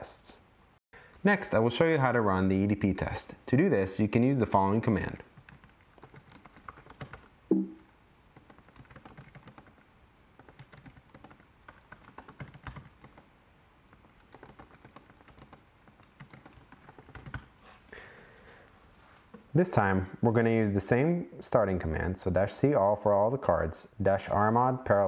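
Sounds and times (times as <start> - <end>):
typing on computer keyboard: 5.4 - 7.3, 8.4 - 9.8, 10.4 - 13.3, 13.9 - 17.5.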